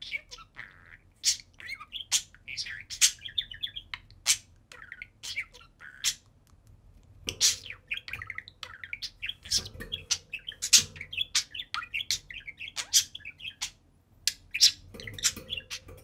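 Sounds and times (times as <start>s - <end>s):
budgerigars chirping: 0.0s - 6.4s, 7.3s - 16.0s
budgerigar warbling chatter: 7.3s - 16.0s.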